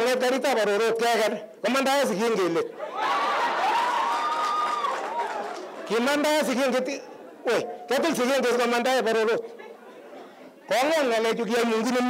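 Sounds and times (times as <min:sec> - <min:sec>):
crowd laughing and calling out: 0:02.7 - 0:08.2, 0:09.4 - 0:10.9.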